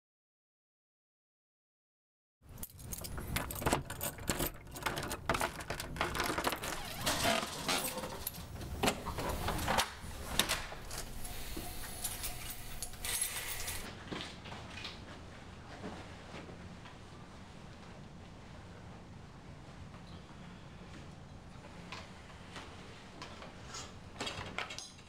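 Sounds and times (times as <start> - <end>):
keys jangling in lock: 2.5 - 8.5, 12.0 - 13.9.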